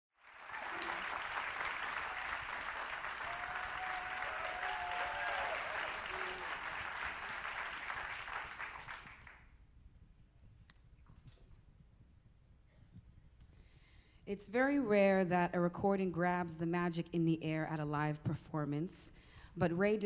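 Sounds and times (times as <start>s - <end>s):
audience applauding: 0.2s - 9.5s.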